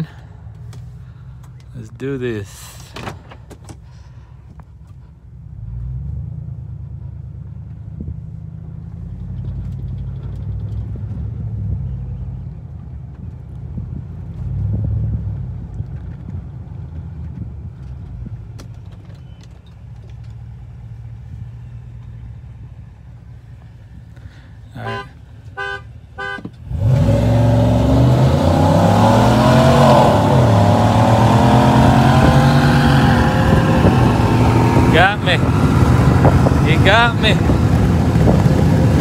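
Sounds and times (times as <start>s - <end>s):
car horn honks: 24.8s - 26.6s
engine revving at full throttle: 26.7s - 39.0s.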